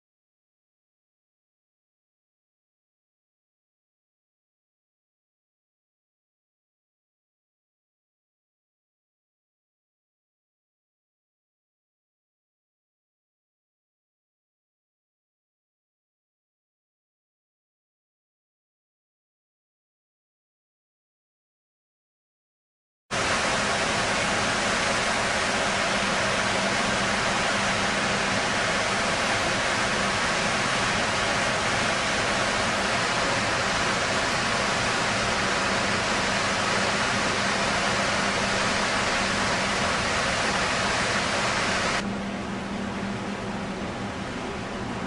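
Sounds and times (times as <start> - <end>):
low steady hum: 23.2 - 45.0
steady loud rushing noise: 23.2 - 45.0.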